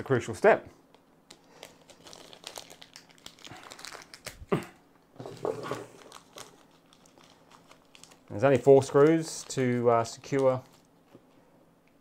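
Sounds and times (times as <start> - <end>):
packaging crinkling and rustling: 1.3 - 4.5, 5.2 - 11.2.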